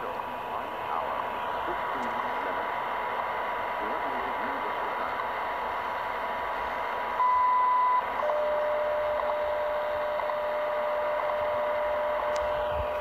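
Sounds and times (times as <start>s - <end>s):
radio static hiss: 0.0s - 13.0s
high beep: 7.2s - 12.4s
time signal ticks: 7.2s - 12.5s.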